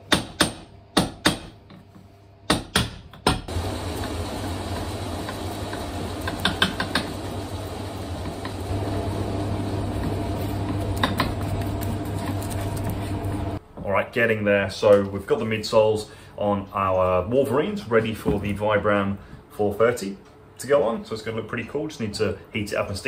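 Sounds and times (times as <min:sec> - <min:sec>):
steady machine hum: 0:03.5 - 0:13.6.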